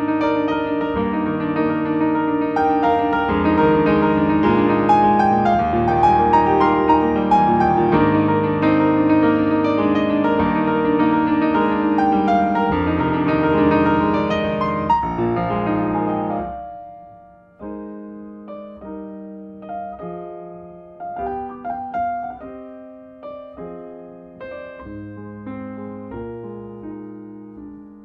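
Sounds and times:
piano held chords: 0.0s - 28.0s
sparse piano notes: 0.0s - 28.0s.

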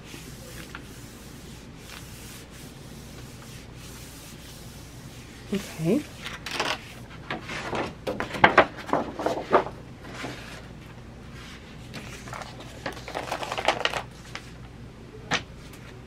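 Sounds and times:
paper rustling: 0.2s - 2.5s, 5.5s - 10.7s, 11.4s - 14.6s.

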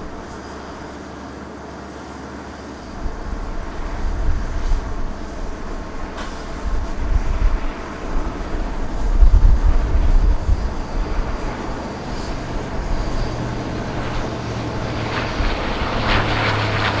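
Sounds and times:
heavy low rumble: 0.0s - 0.9s, 2.9s - 17.0s
turboprop engines droning: 0.0s - 17.0s.

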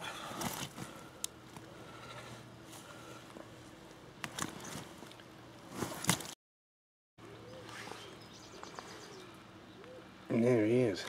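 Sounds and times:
bird calling: 7.2s - 10.5s.

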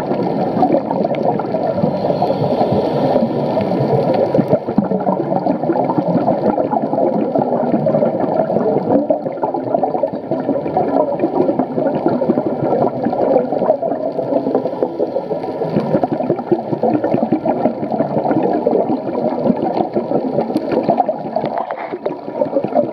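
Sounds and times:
muffled underwater bubbles gurgling: 0.0s - 22.9s.

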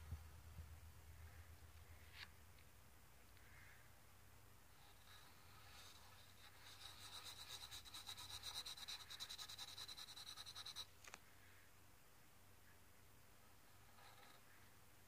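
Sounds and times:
pencil scribbling on paper: 4.8s - 10.9s.

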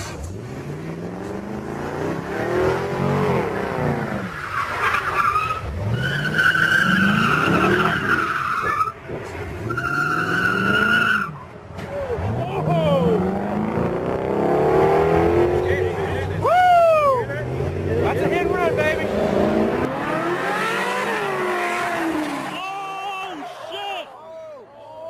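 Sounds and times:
car engine revving: 0.0s - 11.3s, 11.9s - 16.5s, 17.1s - 22.6s
tyres squealing: 4.3s - 9.0s.

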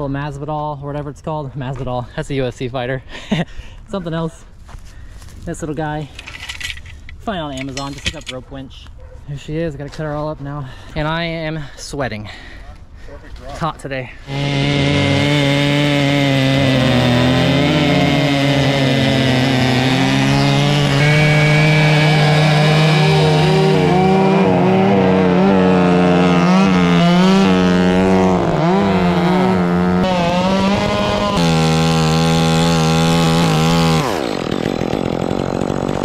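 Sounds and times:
chainsaw cutting wood: 14.3s - 36.0s.

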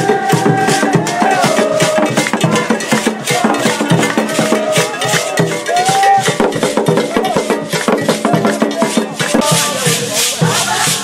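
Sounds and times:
percussion music with rattles: 0.0s - 11.0s.

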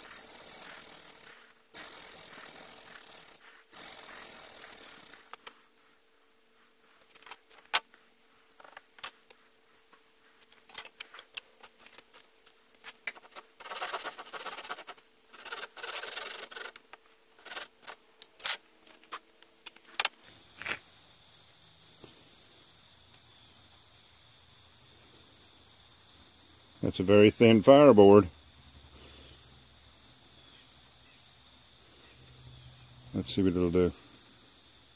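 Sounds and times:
handsaw cutting wood: 0.0s - 5.3s, 13.6s - 16.8s, 17.4s - 18.0s.

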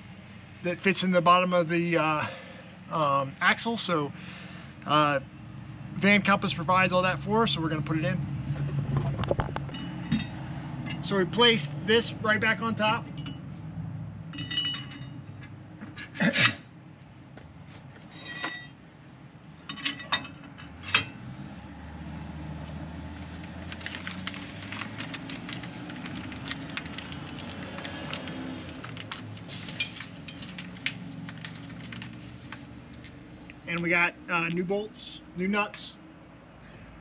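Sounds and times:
metal clanks: 9.0s - 11.1s, 14.3s - 16.7s, 18.1s - 18.8s, 19.6s - 21.2s
metal parts clinking: 9.6s - 11.1s, 14.3s - 16.2s, 18.1s - 18.8s, 19.6s - 21.2s, 29.7s - 30.9s.

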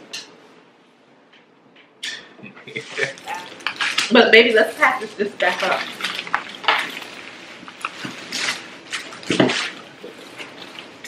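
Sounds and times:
foil and plastic bags crinkling: 3.0s - 11.0s.

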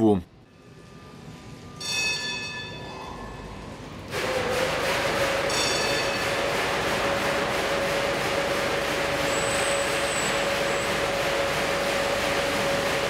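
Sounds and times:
wash machinery hum: 2.9s - 13.0s
water jets spraying: 4.1s - 13.0s.

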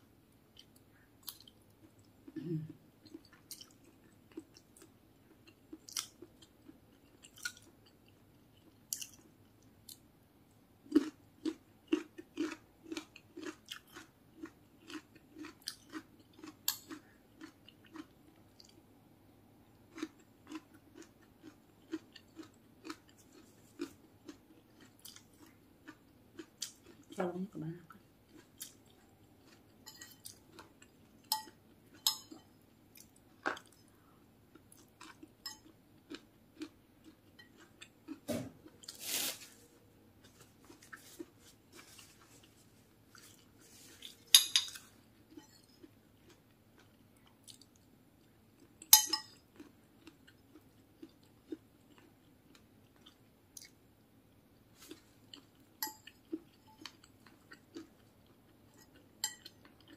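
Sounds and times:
chewing: 0.6s - 9.3s, 10.9s - 18.8s, 19.9s - 27.2s, 27.9s - 39.0s, 40.2s - 53.8s, 54.7s - 59.9s
metal spoon scraping ceramic plate: 44.3s - 44.8s.

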